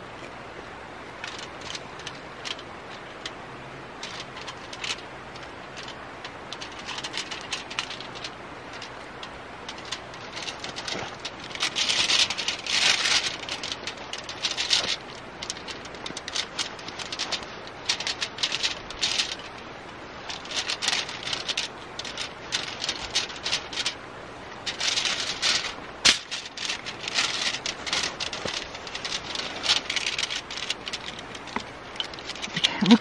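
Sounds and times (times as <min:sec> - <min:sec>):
fish crinkling on foil: 0:09.7 - 0:19.6, 0:20.3 - 0:24.0, 0:24.7 - 0:33.0.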